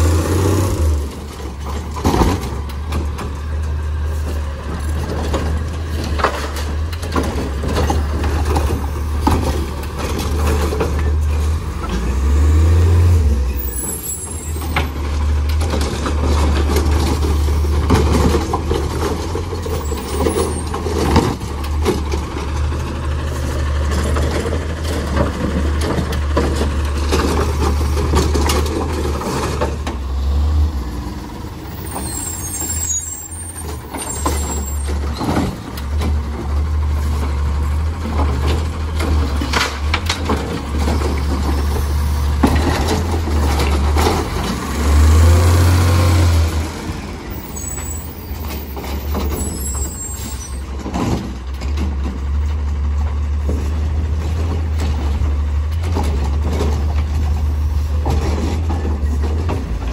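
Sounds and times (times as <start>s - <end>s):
garbage truck engine humming: 0.0s - 59.9s
sharp knocks from carts and arm: 1.6s - 3.3s.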